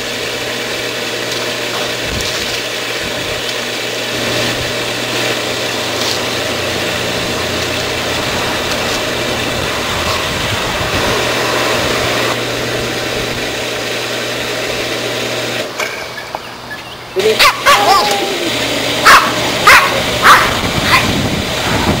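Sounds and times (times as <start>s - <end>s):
water rushing through hose: 0.0s - 15.7s, 17.3s - 22.0s
dog yipping and barking: 17.3s - 18.3s, 19.0s - 21.2s.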